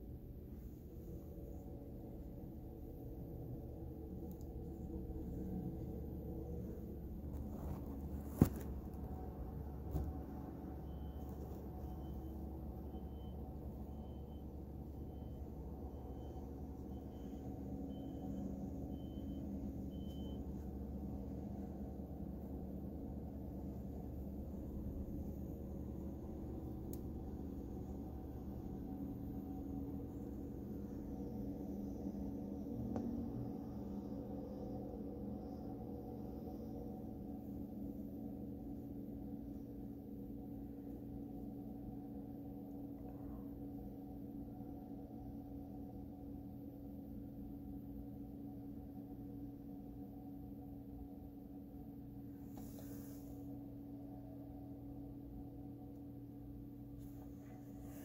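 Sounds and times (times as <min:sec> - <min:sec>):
low steady rumble: 0:00.0 - 0:58.0
steady low hum: 0:00.0 - 0:58.0
vehicle back-up alarm beeping: 0:10.0 - 0:21.4.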